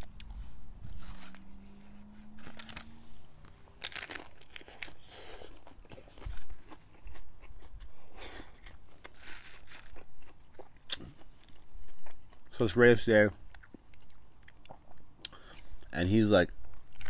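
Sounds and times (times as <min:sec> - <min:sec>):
crunchy chewing: 0:00.0 - 0:12.6, 0:13.3 - 0:15.9
taco shell crunching: 0:00.0 - 0:12.7, 0:16.6 - 0:17.0.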